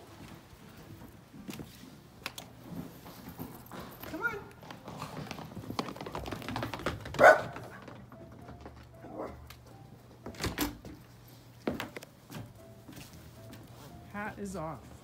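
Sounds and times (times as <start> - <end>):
dog barking: 7.2 - 7.8.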